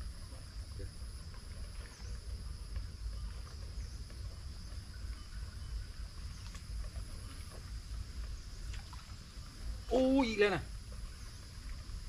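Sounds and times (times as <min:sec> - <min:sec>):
insects droning: 0:00.0 - 0:12.0.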